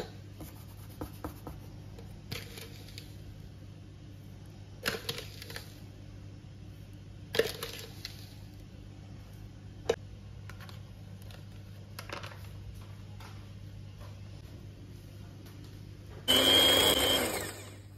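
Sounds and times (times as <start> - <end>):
spoon scraping sugar: 0.4 - 3.5, 4.7 - 5.9, 7.3 - 8.7.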